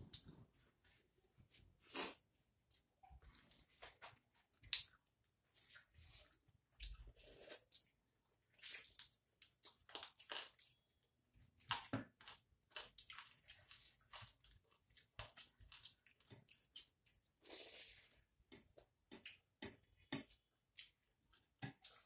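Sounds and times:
wet chewing and lip smacks: 0:04.6 - 0:05.1, 0:11.5 - 0:17.4, 0:18.4 - 0:22.0.

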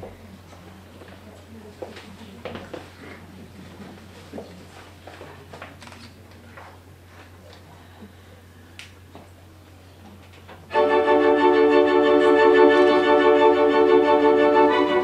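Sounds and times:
organ chords: 0:10.7 - 0:15.0.

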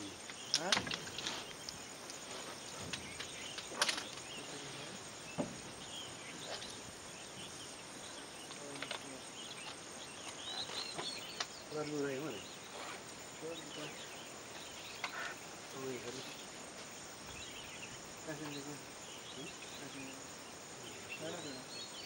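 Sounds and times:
insect chorus: 0:00.0 - 0:22.0
sharp knocks: 0:05.3 - 0:05.7.

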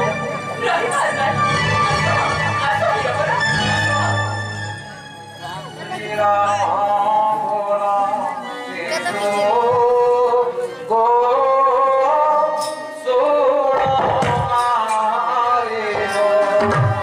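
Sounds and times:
stage music: 0:00.0 - 0:17.0.

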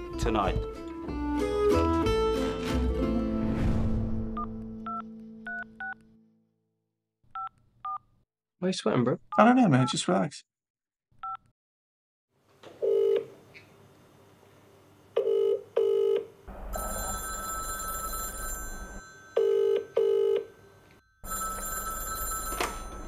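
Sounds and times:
telephone ringing: 0:12.8 - 0:13.3, 0:15.2 - 0:23.0.

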